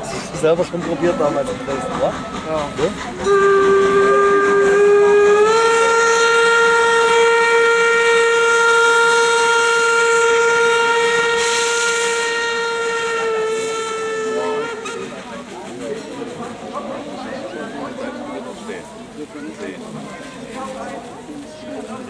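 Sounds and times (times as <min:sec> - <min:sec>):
steam locomotive whistle blast: 0:00.9 - 0:16.7.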